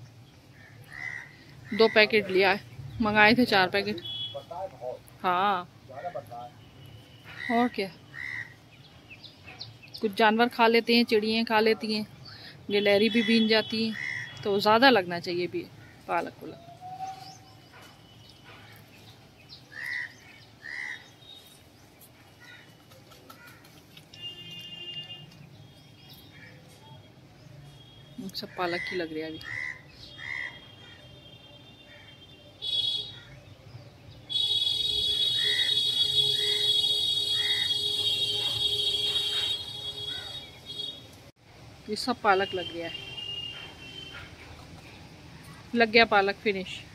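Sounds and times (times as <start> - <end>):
bird calling: 0.6 - 2.6, 5.9 - 8.7, 12.2 - 14.8, 15.8 - 21.6, 27.8 - 31.1, 34.3 - 41.1.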